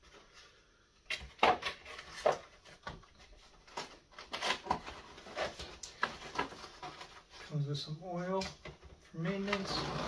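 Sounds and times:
cardboard scraping and rustling: 1.5s - 7.5s.

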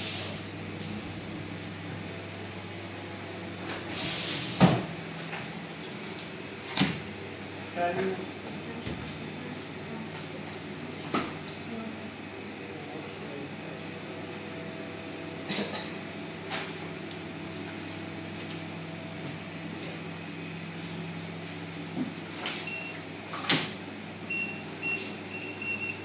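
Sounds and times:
machine hum: 0.0s - 26.0s
payment terminal key beeps: 22.6s - 23.0s, 24.3s - 26.0s.

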